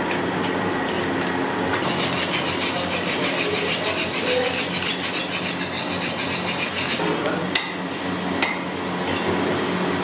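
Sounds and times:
knife scraping fish on wood: 0:01.8 - 0:07.0.

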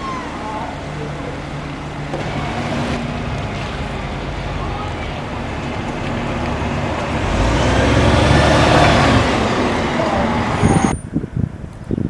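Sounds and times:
bus diesel engine passing: 0:00.0 - 0:11.2.

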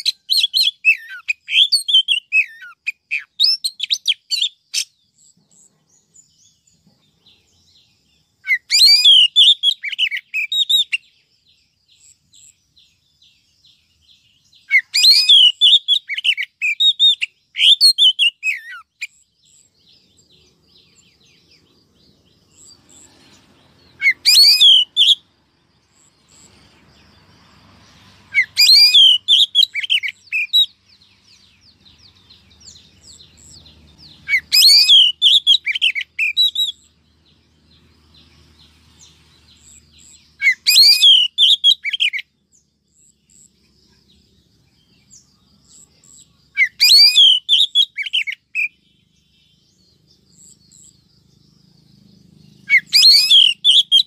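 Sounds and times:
bird chirping and whistling: 0:00.0 - 0:04.9, 0:08.4 - 0:11.0, 0:14.6 - 0:19.7, 0:23.9 - 0:25.2, 0:28.3 - 0:30.7, 0:32.6 - 0:36.9, 0:39.6 - 0:42.2, 0:46.6 - 0:48.8, 0:52.6 - 0:54.0.

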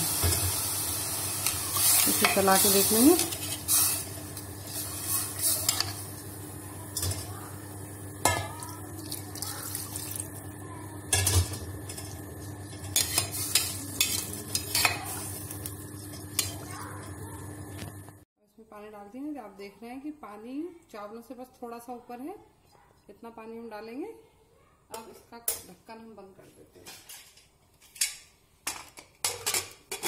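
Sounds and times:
spoon stirring in a metal pot: 0:01.4 - 0:06.2, 0:11.1 - 0:17.2.

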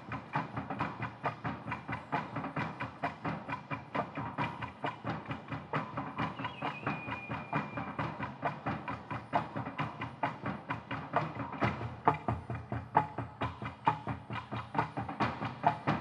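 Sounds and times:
fast percussion strikes: 0:00.0 - 0:16.0.

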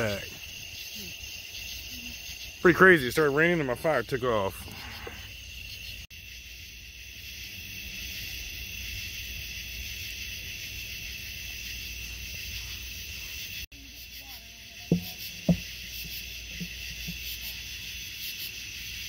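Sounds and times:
night insects chorus: 0:00.0 - 0:19.0.

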